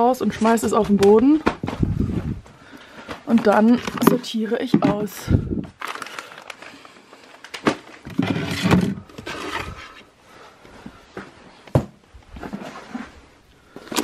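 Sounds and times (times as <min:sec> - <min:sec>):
rustling and scraping of fabric: 0:08.0 - 0:10.1, 0:12.2 - 0:13.8.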